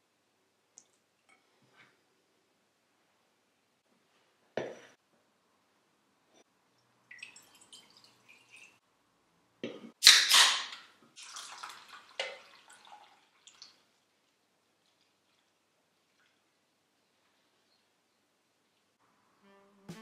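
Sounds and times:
beer can cracked open: 10.0s - 10.9s.

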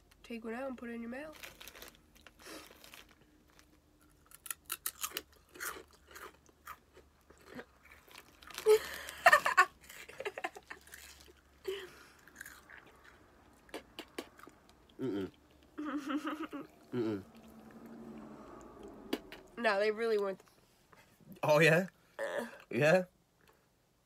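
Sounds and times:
chewing crunchy snack: 1.4s - 9.2s, 9.8s - 15.7s.

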